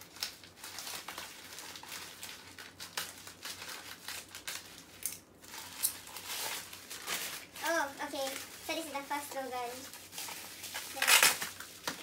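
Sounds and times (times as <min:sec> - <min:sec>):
scissors cutting plastic: 0:00.0 - 0:07.4, 0:10.2 - 0:12.0
bubble wrap rustling: 0:00.0 - 0:12.0
plastic mailer bag crinkling: 0:00.0 - 0:12.0.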